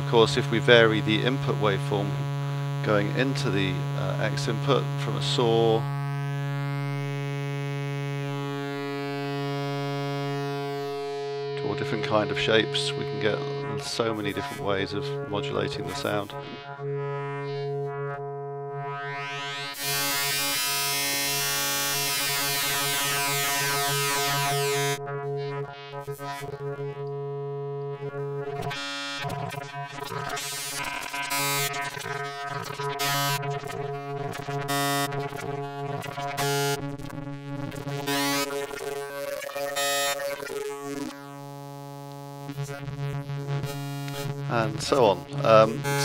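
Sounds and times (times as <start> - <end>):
held synthesizer note: 44.1 - 46.0.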